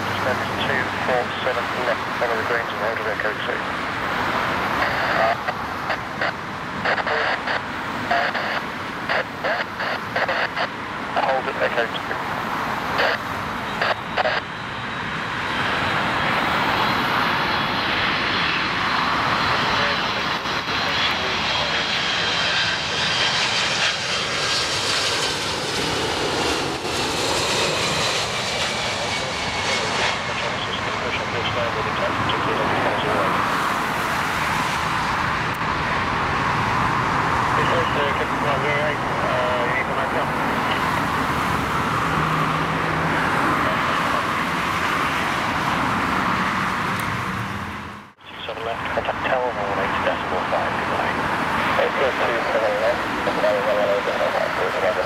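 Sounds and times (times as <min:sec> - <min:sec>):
jet plane passing overhead: 0:00.0 - 0:55.0
road traffic noise: 0:00.0 - 0:55.0
cars passing close by: 0:40.2 - 0:48.1.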